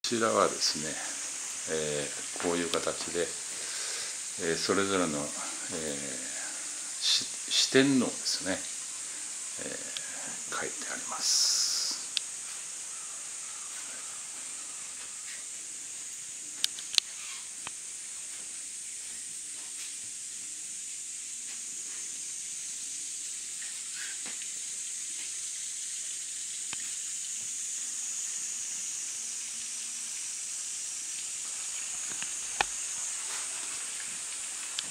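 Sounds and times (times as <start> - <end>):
high-pitched hiss: 0.0 - 34.9.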